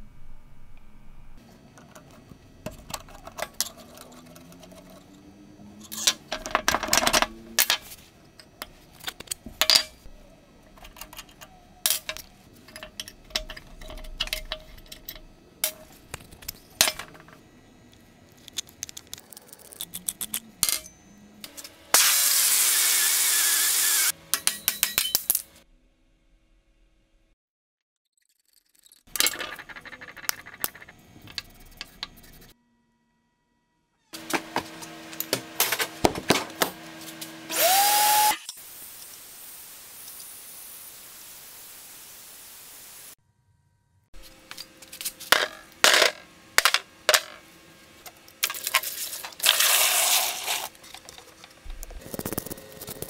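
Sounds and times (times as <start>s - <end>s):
metal parts clicking and clinking: 5.8s - 10.1s, 10.7s - 17.4s, 18.3s - 21.7s, 28.5s - 32.1s, 48.0s - 53.0s.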